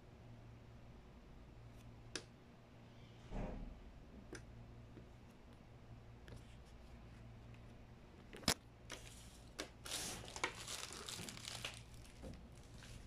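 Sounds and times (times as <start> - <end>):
cables rustling and scraping: 6.3 - 13.0.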